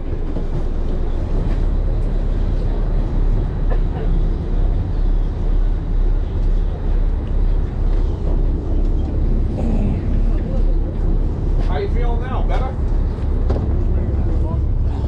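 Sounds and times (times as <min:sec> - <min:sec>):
boat engine rumbling: 0:00.0 - 0:15.0.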